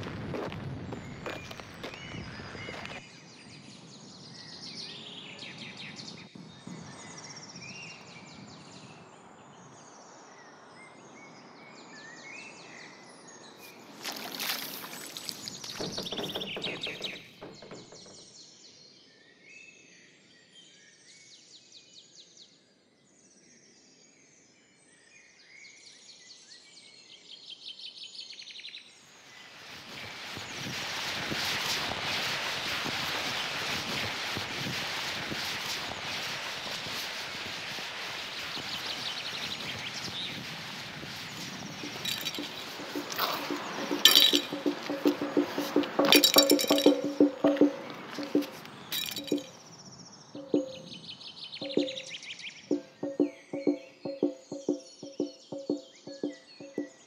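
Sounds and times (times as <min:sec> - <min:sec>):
outdoor ambient noise: 0:00.0 - 0:18.5, 0:29.0 - 0:57.0
birds chirping: 0:13.5 - 0:18.2, 0:41.7 - 0:49.6, 0:50.2 - 0:57.0
loud rush of noise: 0:29.8 - 0:49.4.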